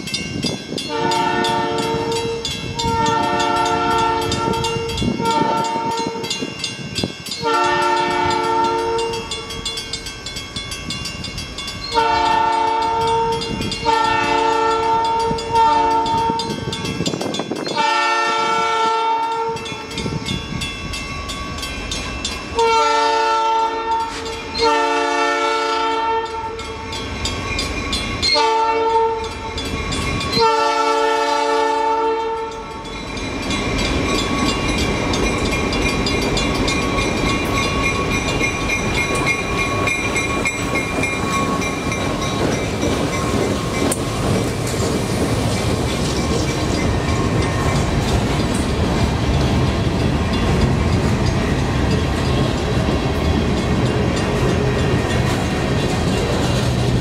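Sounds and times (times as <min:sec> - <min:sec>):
diesel locomotive engine rumble: 0:00.0 - 0:57.0
train wheels on rail: 0:00.0 - 0:57.0
train air horn: 0:00.9 - 0:06.2, 0:07.4 - 0:09.3, 0:11.9 - 0:16.6, 0:17.7 - 0:19.6, 0:22.6 - 0:26.7, 0:28.3 - 0:29.3, 0:30.4 - 0:32.6.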